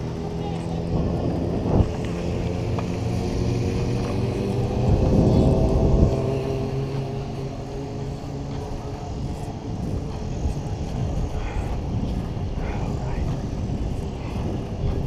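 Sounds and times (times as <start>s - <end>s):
vehicle engine passing: 0.0s - 10.2s
wind rumble on microphone: 0.0s - 15.0s.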